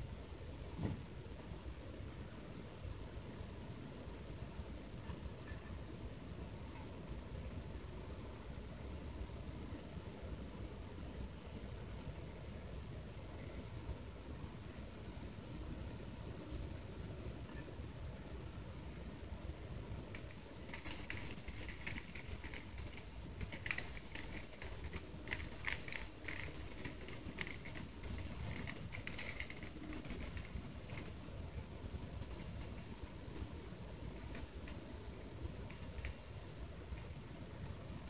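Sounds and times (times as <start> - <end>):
beads clicking and jingling: 20.2 - 37.8.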